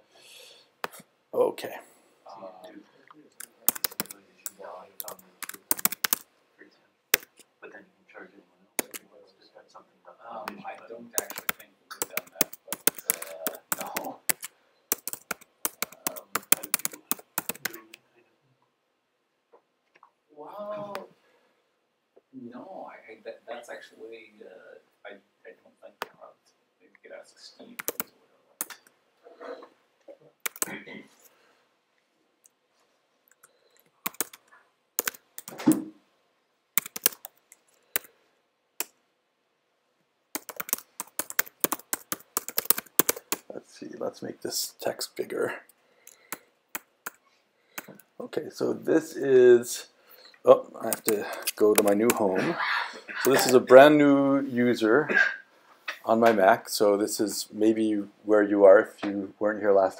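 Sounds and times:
keyboard typing: 0:03.3 - 0:06.3, 0:07.2 - 0:07.4, 0:08.8 - 0:09.0, 0:11.2 - 0:18.0, 0:27.8 - 0:28.9, 0:30.4 - 0:30.8, 0:33.3 - 0:35.9, 0:36.8 - 0:38.1, 0:40.4 - 0:43.5, 0:50.8 - 0:52.4, 0:53.2 - 0:53.6.

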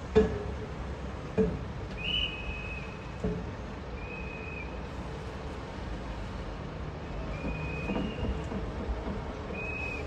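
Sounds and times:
steady street rush: 0:00.0 - 0:10.0
high whistle-like tones: 0:02.0 - 0:03.1, 0:04.0 - 0:04.8, 0:09.5 - 0:10.0.

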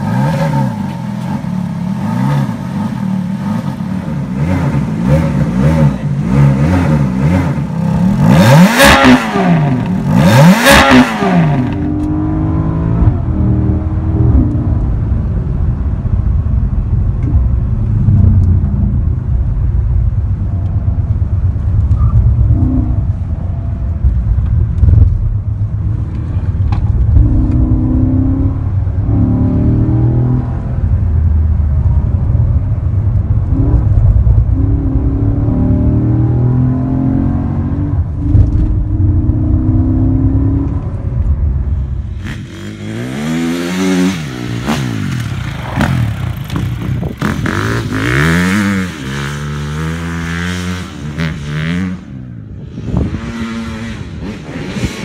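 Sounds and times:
car engine drone from cabin: 0:00.0 - 0:42.5
dirt bike engine revving: 0:04.3 - 0:12.8, 0:42.1 - 0:52.1, 0:52.7 - 0:55.0.

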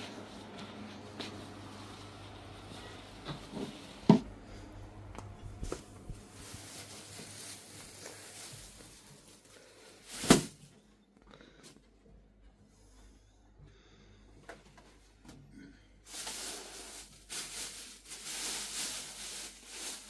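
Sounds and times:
faint rustling: 0:05.5 - 0:10.8.

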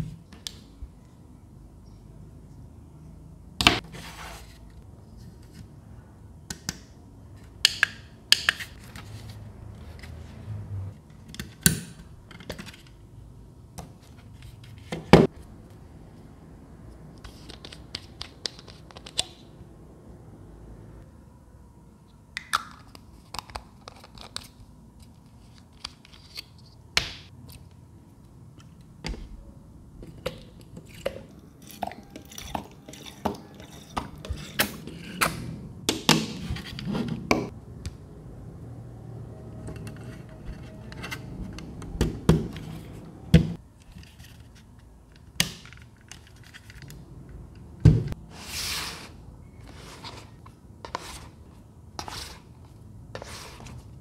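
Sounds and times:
rustling scrapes on tabletop: 0:03.9 - 0:04.8, 0:48.3 - 0:51.4, 0:53.1 - 0:54.0.

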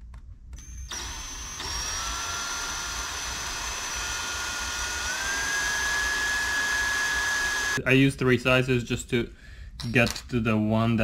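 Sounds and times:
power drill drilling steel: 0:00.6 - 0:07.8.

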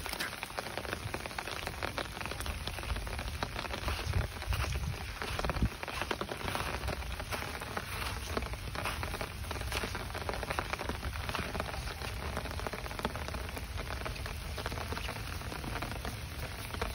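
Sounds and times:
rain pattering on grass and leaves: 0:00.0 - 0:16.9.

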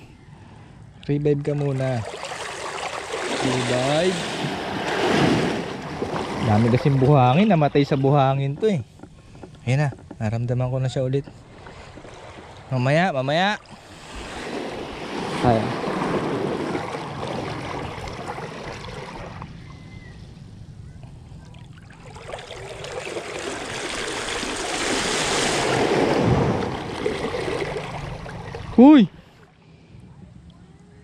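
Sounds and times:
small waves washing: 0:01.3 - 0:19.8, 0:21.4 - 0:29.8
wave breaking: 0:01.4 - 0:08.8, 0:11.4 - 0:19.5, 0:21.6 - 0:29.4.

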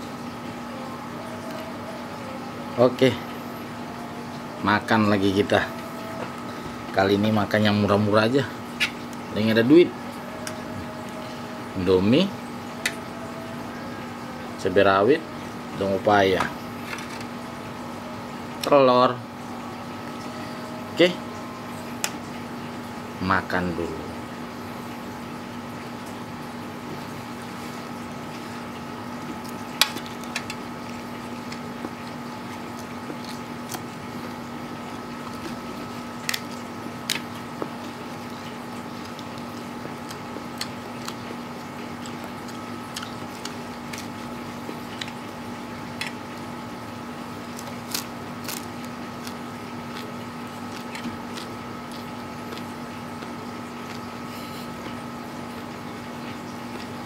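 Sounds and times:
steady background hum: 0:00.0 - 0:57.0
chewing food: 0:26.9 - 0:57.0.

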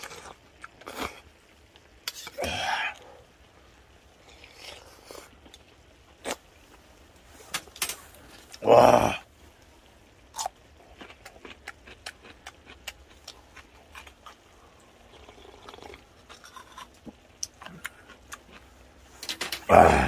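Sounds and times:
wet chewing: 0:10.3 - 0:18.8.

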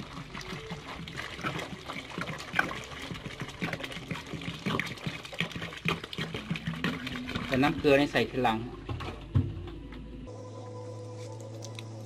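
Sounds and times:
water pouring into soapy basin: 0:00.0 - 0:08.5.

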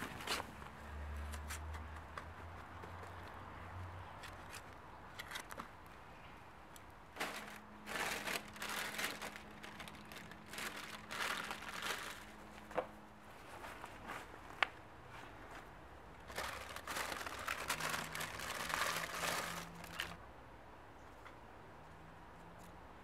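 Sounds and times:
packets crinkling and rustling: 0:07.2 - 0:12.7, 0:16.2 - 0:20.2.

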